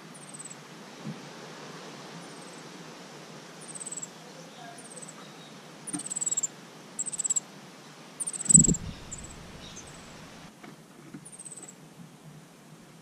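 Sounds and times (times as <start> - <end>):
bird high trilled calls: 0.1 - 0.6, 3.6 - 4.2, 5.9 - 7.4, 8.2 - 10.1.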